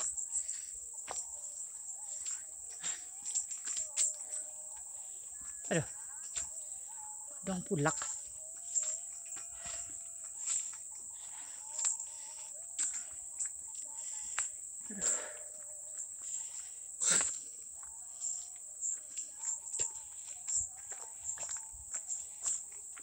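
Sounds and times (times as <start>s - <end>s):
high-pitched insect drone: 0.0s - 23.0s
footsteps crunching on dry leaves: 7.5s - 14.4s, 18.2s - 23.0s.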